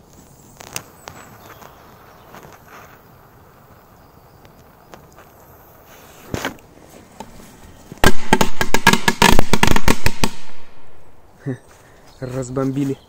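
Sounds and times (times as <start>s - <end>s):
firecrackers banging: 8.0s - 11.0s.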